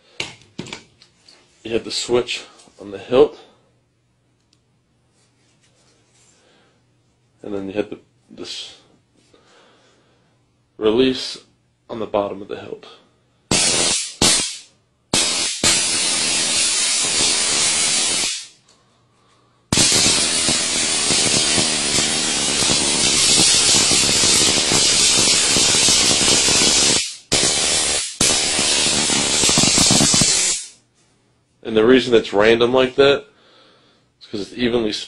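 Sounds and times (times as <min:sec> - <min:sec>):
stun gun arc crackling: 0:13.5 - 0:18.6, 0:19.7 - 0:30.8.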